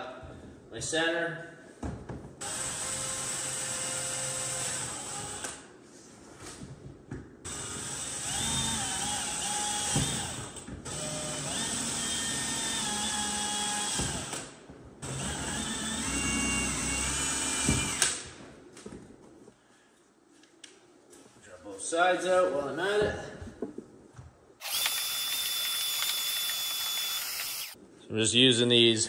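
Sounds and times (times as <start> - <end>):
power drill whining: 2.4 - 5.6, 7.5 - 18.2, 24.6 - 27.8.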